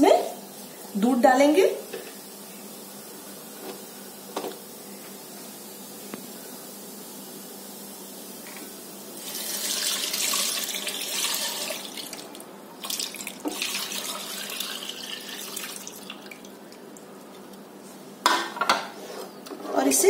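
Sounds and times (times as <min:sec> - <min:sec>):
milk pouring and splashing: 0:09.2 - 0:17.6.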